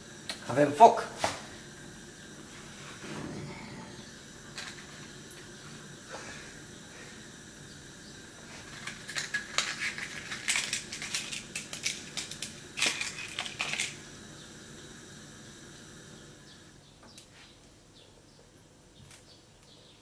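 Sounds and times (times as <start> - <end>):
clattering on a gas stovetop: 3.0 - 5.6, 8.4 - 14.0.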